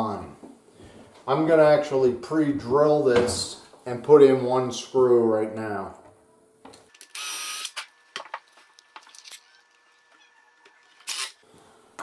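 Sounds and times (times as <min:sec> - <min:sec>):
cordless drill burst: 0:07.0 - 0:08.0, 0:10.8 - 0:11.4.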